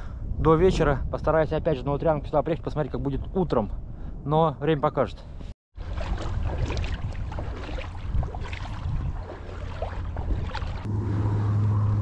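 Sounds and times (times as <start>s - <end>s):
water splashing against boat: 5.8s - 12.0s
low rumble: 10.1s - 12.0s.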